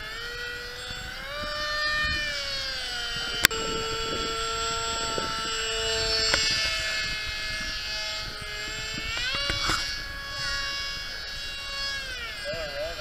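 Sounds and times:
model plane propeller whining: 0:00.0 - 0:13.0.

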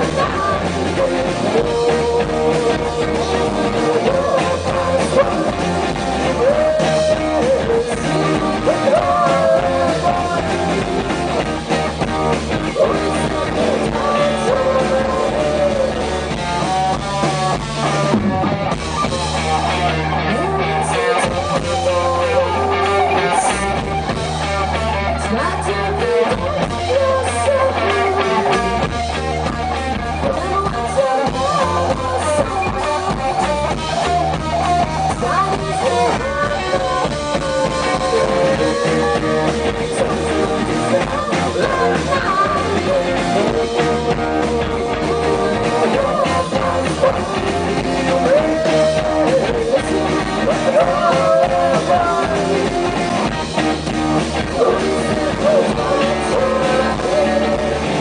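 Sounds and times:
woman singing: 0:00.0 - 0:10.9, 0:12.7 - 0:16.9, 0:25.1 - 0:28.8, 0:30.0 - 0:52.9
bass guitar: 0:00.0 - 0:58.0
drum kit: 0:00.0 - 0:58.0
electric guitar: 0:00.0 - 0:58.0.

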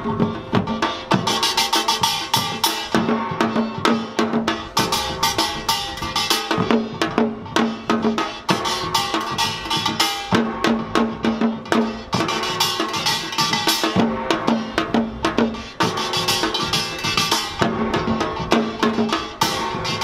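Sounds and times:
hourglass drums: 0:00.0 - 0:20.0
small gong clanging: 0:11.8 - 0:20.0.

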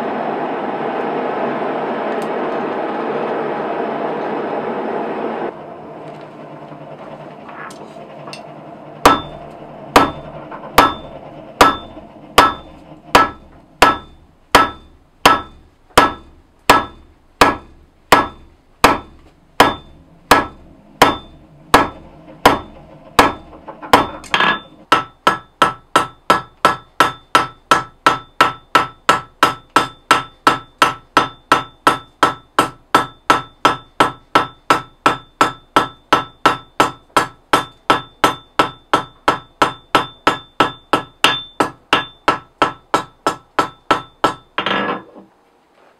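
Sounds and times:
hammer ringing on hot steel: 0:08.3 - 0:45.0.

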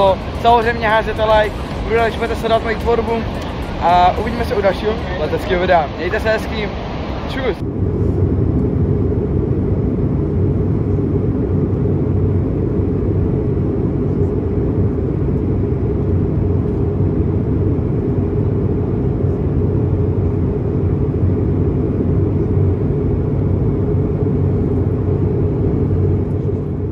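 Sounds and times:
waterfall roar: 0:00.0 - 0:07.6.

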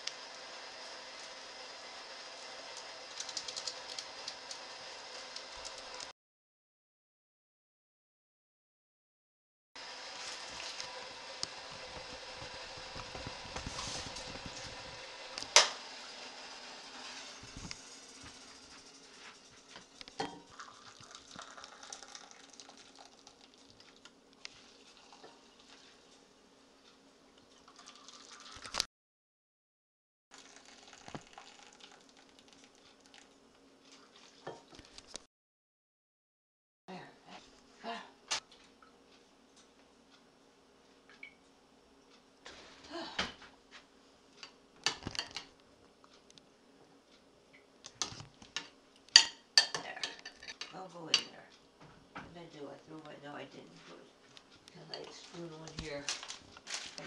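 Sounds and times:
water pouring into a cup: 0:20.4 - 0:25.9, 0:27.5 - 0:28.8, 0:30.3 - 0:34.4
dishes and utensils clinking: 0:49.2 - 0:51.4.

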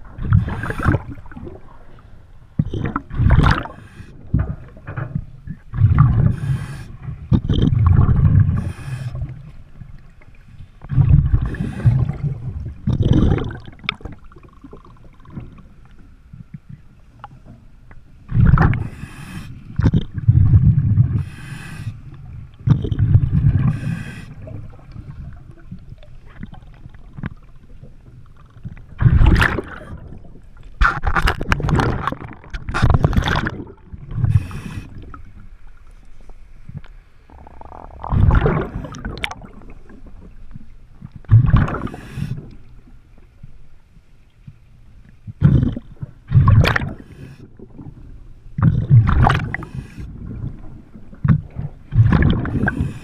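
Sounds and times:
bubbles gurgling underwater: 0:00.0 - 0:01.9, 0:02.6 - 0:10.2, 0:10.8 - 0:17.4, 0:18.3 - 0:19.0, 0:19.8 - 0:21.4, 0:22.2 - 0:30.4, 0:31.0 - 0:35.4, 0:37.3 - 0:42.6, 0:45.3 - 0:53.0
hissing regulator breaths: 0:06.3 - 0:07.0, 0:08.6 - 0:09.3, 0:18.8 - 0:19.7, 0:21.2 - 0:22.1, 0:23.7 - 0:24.5, 0:34.2 - 0:35.0.

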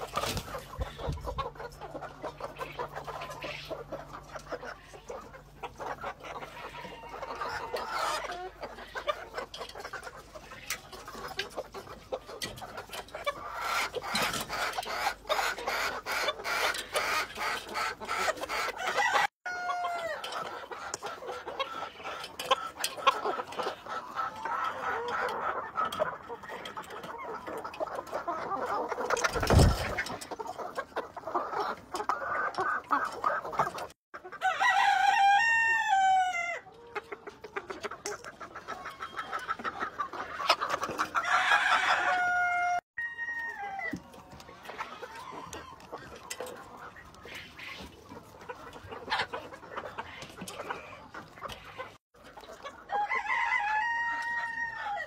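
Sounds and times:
chickens clucking: 0:00.0 - 0:55.0
rooster crowing: 0:18.8 - 0:20.2, 0:34.4 - 0:36.6, 0:41.2 - 0:44.0, 0:52.9 - 0:55.0.

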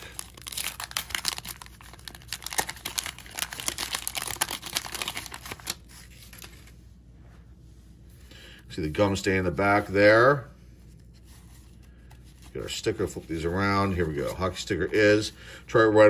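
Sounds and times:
waxed paper wrapper crinkling: 0:00.0 - 0:06.8, 0:10.8 - 0:15.3.

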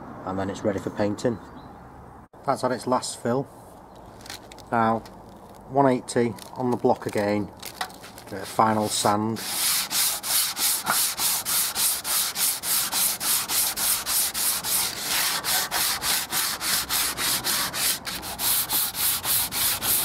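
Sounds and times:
sandpaper rasping on wood: 0:08.3 - 0:20.0.

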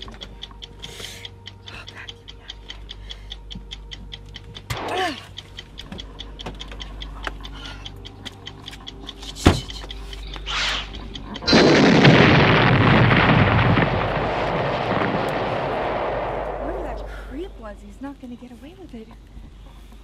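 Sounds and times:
rapid clock-like ticking: 0:00.0 - 0:19.6
loud steady rushing noise: 0:10.8 - 0:18.0
whoosh: 0:11.5 - 0:17.6.

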